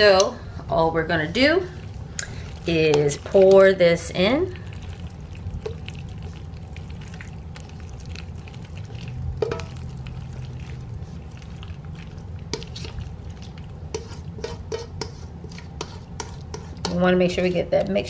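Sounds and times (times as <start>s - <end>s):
wet pasta squelching: 1.4s - 18.0s
spatula scraping bowl: 4.8s - 18.0s.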